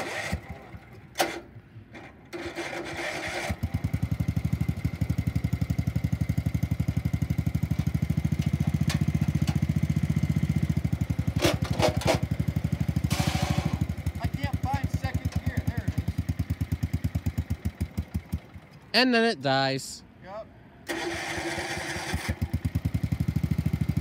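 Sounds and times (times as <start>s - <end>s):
tractor engine starting: 0.0s - 18.9s, 20.8s - 24.0s
engine running with pulsing beat: 3.6s - 18.8s, 22.4s - 24.0s.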